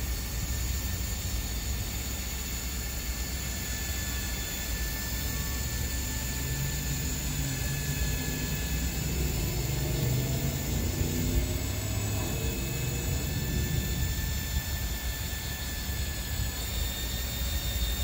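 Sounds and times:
awning motor whirring: 3.7s - 18.0s.

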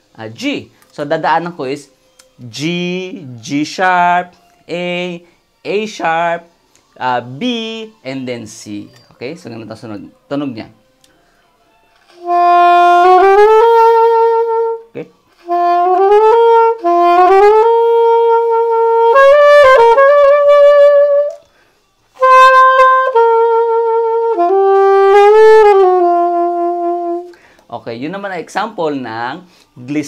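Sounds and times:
saxophone glissandos: 12.1s - 21.5s, 22.2s - 27.4s.

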